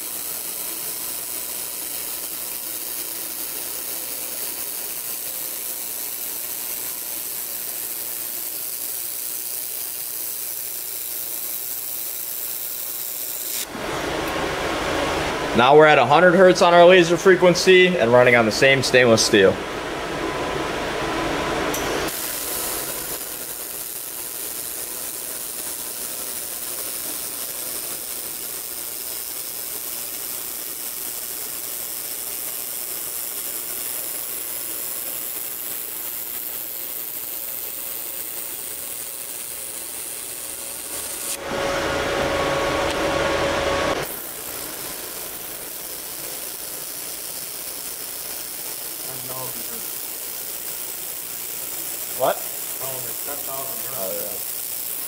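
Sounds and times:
laser welder crackle and hiss: 0:00.0 - 0:19.5, 0:21.6 - 0:55.0
steady tone: 0:41.4 - 0:44.1.

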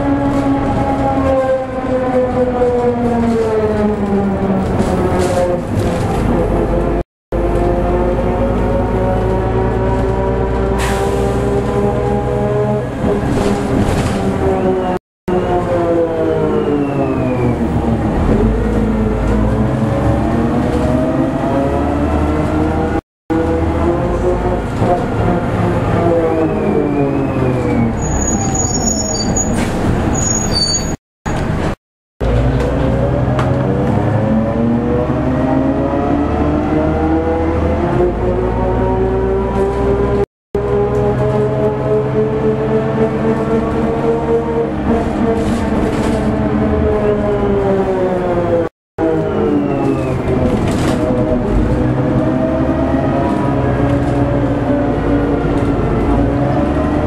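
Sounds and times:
diesel bus engine: 0:00.0 - 0:57.0
bus gears whining: 0:25.9 - 0:31.6, 0:32.2 - 0:57.0.

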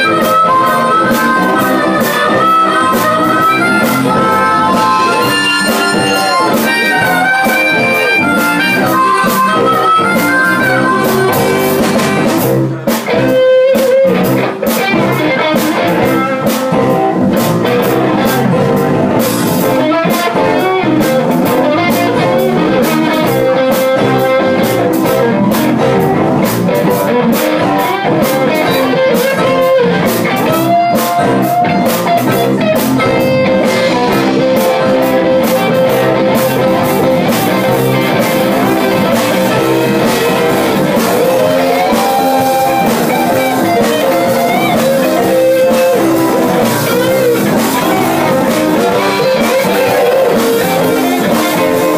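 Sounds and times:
harmonica: 0:00.0 - 0:12.6, 0:26.8 - 0:51.9
bass guitar: 0:00.0 - 0:51.9
drum kit: 0:00.0 - 0:51.9
electric guitars: 0:00.0 - 0:51.9.

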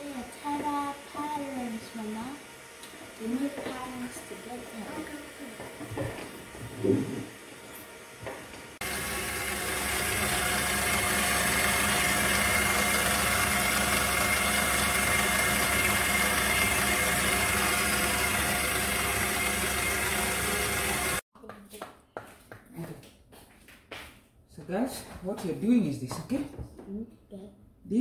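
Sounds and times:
electric stand mixer running: 0:00.0 - 0:21.2.

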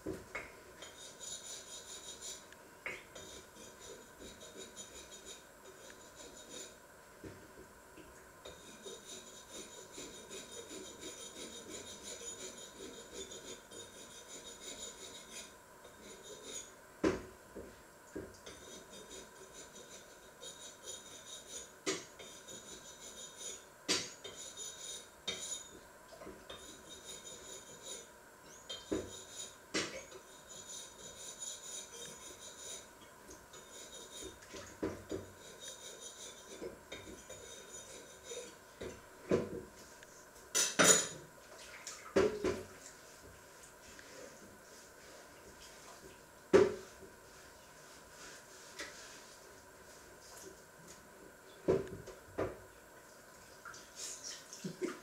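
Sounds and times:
faint rubbing and scraping: 0:33.5 - 0:38.6, 0:43.0 - 0:45.9, 0:46.8 - 0:50.4.

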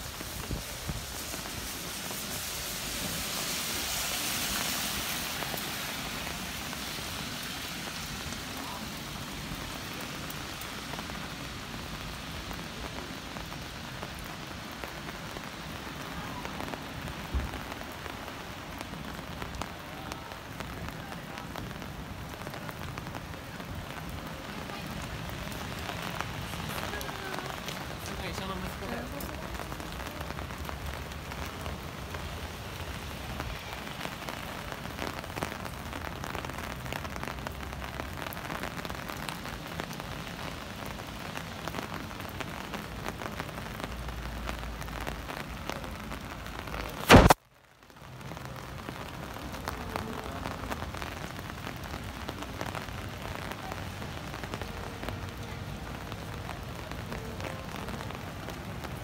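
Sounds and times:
rain on wet pavement: 0:00.0 - 0:59.0
sharp loud click: 0:47.0 - 0:47.4.

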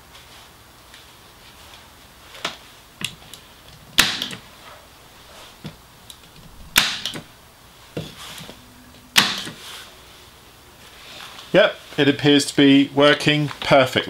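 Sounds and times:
electric nailer firing: 0:04.0 - 0:04.5, 0:06.8 - 0:07.3.

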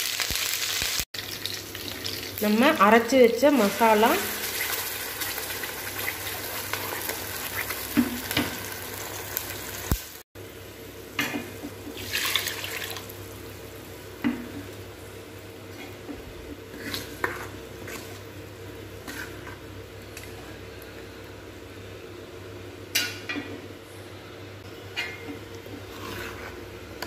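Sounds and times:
paste sizzling in hot oil: 0:03.5 - 0:10.2.

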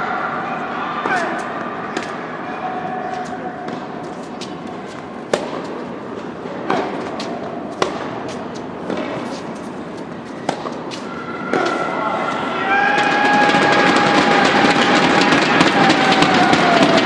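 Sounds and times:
indoor arena hum: 0:00.0 - 0:17.0
tennis ball hits: 0:01.0 - 0:02.2, 0:03.1 - 0:11.9.

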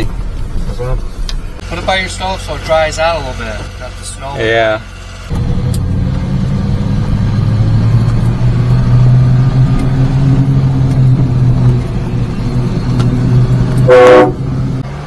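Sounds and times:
truck engine pulling away: 0:00.0 - 0:15.0.

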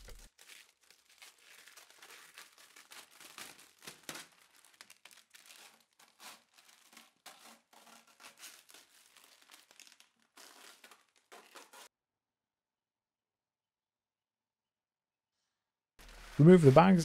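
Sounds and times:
masking paper crinkling and tearing: 0:00.0 - 0:11.9, 0:16.0 - 0:17.0.

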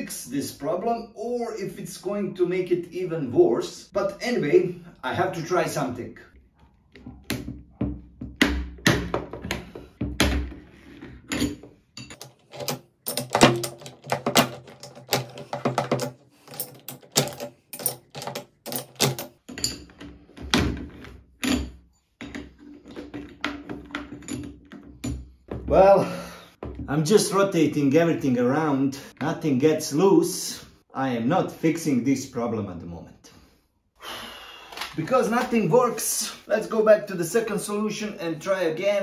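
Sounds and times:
tools clinking against metal chuck: 0:11.2 - 0:20.2, 0:21.4 - 0:25.3.

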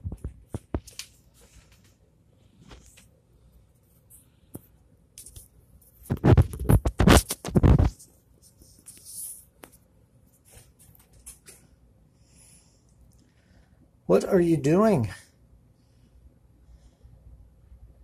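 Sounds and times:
microphone rubbing and scraping: 0:06.0 - 0:08.1.

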